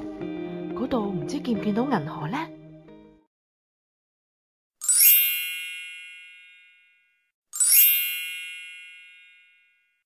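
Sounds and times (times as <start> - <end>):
bright chime strikes: 7.6 - 9.7.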